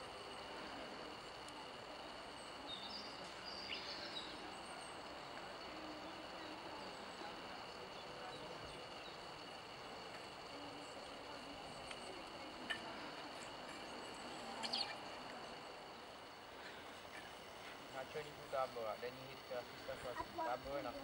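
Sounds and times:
steady low hiss: 0.0s - 21.0s.

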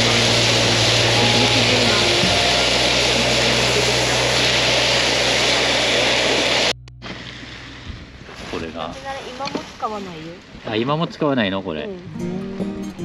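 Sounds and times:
gas burner roaring: 0.0s - 6.8s
low hum: 0.0s - 9.0s.

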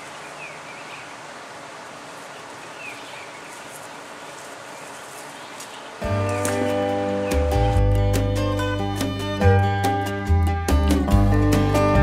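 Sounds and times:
outdoor ambience: 0.0s - 12.0s
acoustic guitar music: 6.0s - 12.0s.

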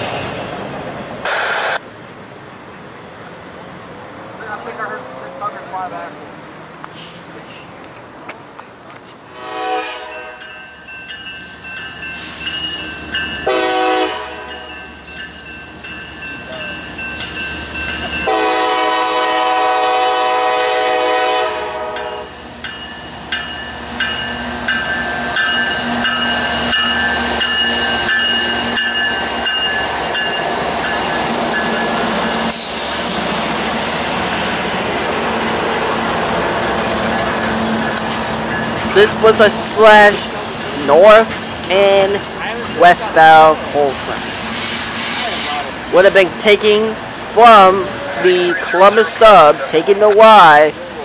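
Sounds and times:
train rumble passing: 0.0s - 51.0s
locomotive horn blasts: 9.4s - 10.4s, 13.4s - 14.7s, 18.2s - 22.3s.

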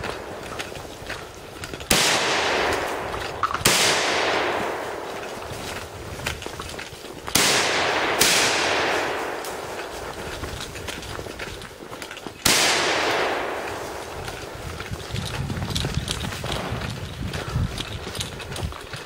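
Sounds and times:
shotgun shots with echo: 1.9s - 5.2s, 7.3s - 9.8s, 12.4s - 14.1s.

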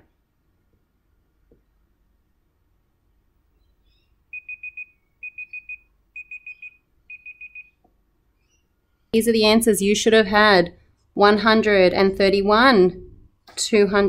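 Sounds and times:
high electronic alarm beeps: 4.3s - 7.8s.

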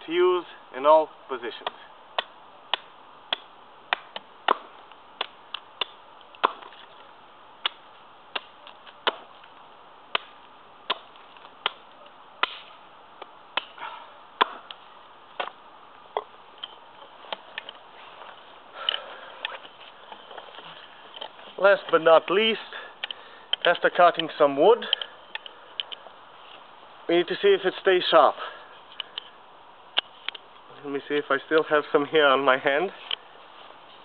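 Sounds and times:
axe chopping wood: 1.6s - 6.9s, 7.6s - 9.5s, 10.1s - 12.8s, 13.5s - 14.8s, 15.4s - 16.3s.

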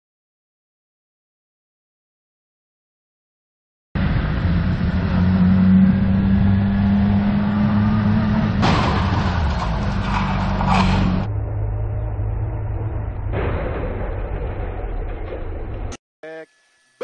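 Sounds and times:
rushes of noise: 4.0s - 15.9s.

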